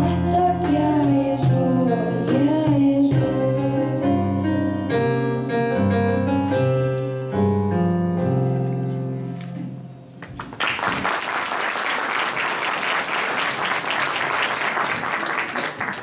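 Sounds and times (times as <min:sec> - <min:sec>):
electronic keyboard chords: 0:00.0 - 0:09.9
audience applause: 0:10.2 - 0:16.0.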